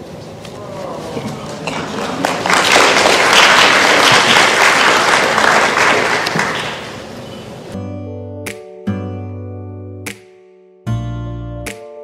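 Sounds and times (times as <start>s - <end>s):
guests applauding: 1.2s - 7.2s.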